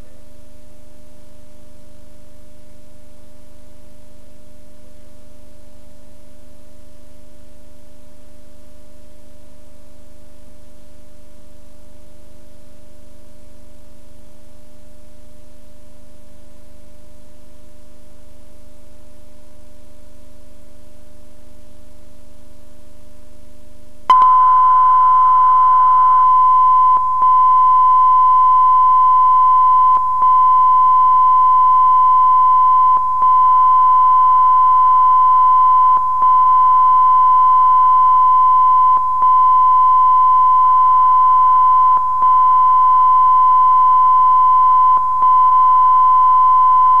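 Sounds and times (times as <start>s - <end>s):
low hum: 23.9s - 47.0s
high-pitched sine tone: 24.1s - 47.0s.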